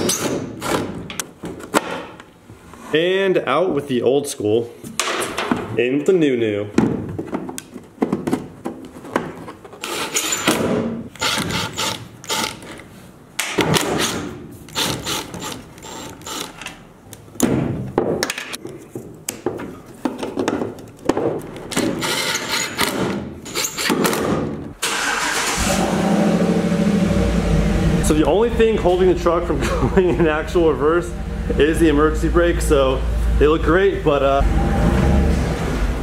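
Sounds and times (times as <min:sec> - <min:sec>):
knocks and clicks from handling parts: 0:00.0 - 0:02.3, 0:04.9 - 0:05.8, 0:06.8 - 0:09.6, 0:13.4 - 0:24.7
truck engine idling: 0:30.1 - 0:33.6.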